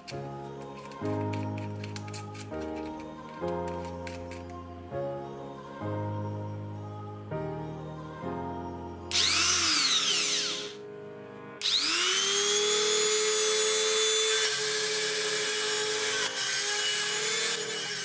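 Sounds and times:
background music: 0.0 - 18.0
rotary tool grinding metal: 9.1 - 10.8, 11.6 - 18.0.

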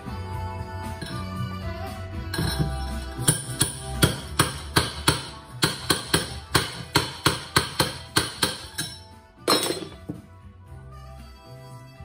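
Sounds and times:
metal clatter: 8.7 - 10.2.

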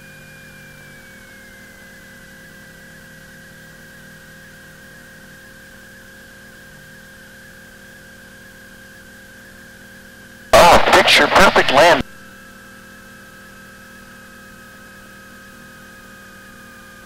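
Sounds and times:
electrical hum and hiss: 10.6 - 12.0
person speaking over radio: 10.6 - 12.0.

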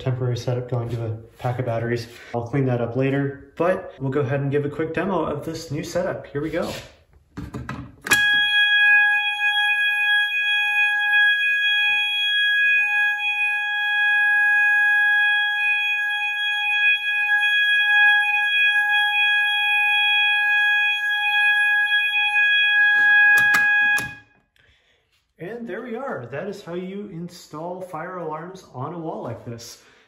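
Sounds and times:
steady fire alarm tone: 8.0 - 24.5.

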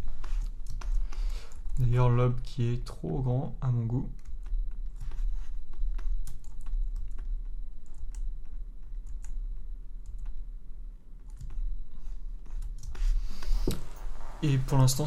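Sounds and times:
low steady hum: 0.0 - 15.0
computer keyboard clicks: 5.9 - 9.4, 10.0 - 10.4, 11.2 - 11.6.

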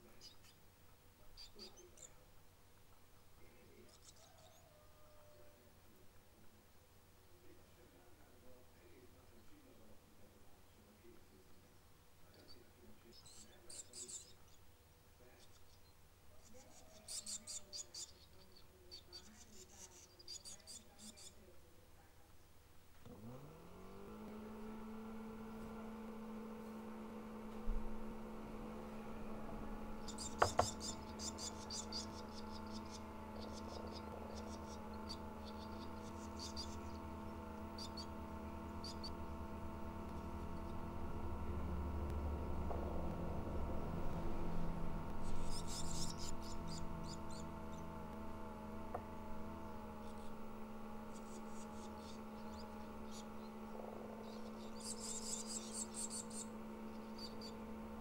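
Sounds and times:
nestlings begging calls: 0.0 - 2.2, 3.4 - 5.7, 12.3 - 21.5, 23.4 - 58.0
electric motor hum: 22.9 - 58.0.

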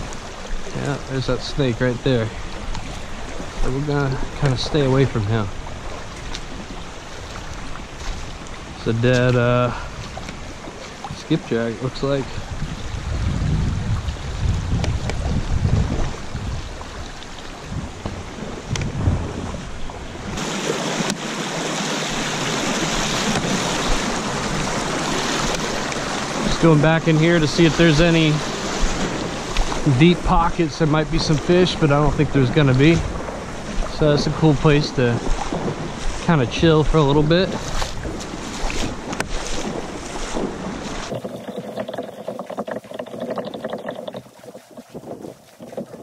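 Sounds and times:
creek water rushing over rocks: 0.0 - 13.3, 19.7 - 46.0
wind on microphone: 11.9 - 21.4, 22.1 - 46.0.

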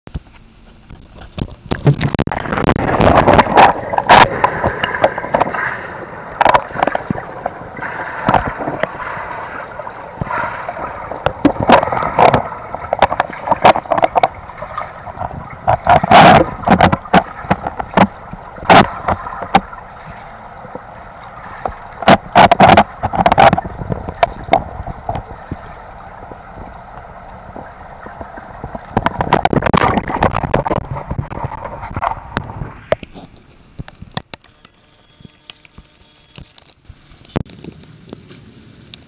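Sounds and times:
sharp clicks and knocks: 0.1 - 5.7, 6.4 - 7.6, 11.2 - 20.8, 21.5 - 34.7
muffled underwater churning: 0.6 - 39.0.

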